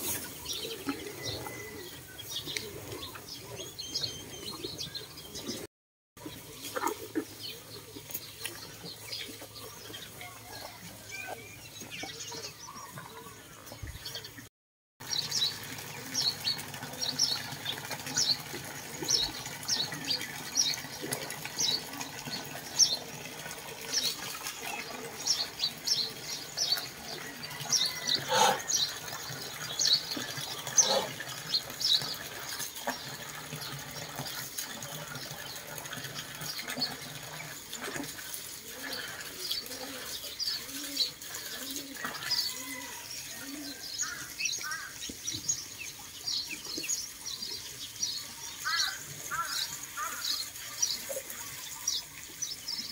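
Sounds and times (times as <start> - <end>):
water splashing into a trough: 15.0 - 42.7
small birds chirping: 23.8 - 34.4.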